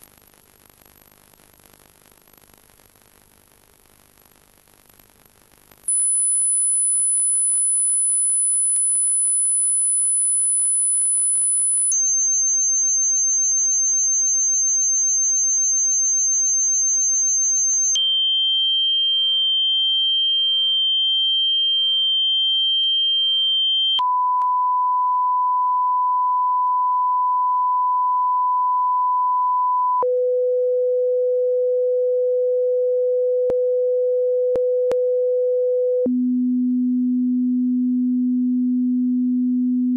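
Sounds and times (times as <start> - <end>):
pure test tones: 5.9 - 18.1.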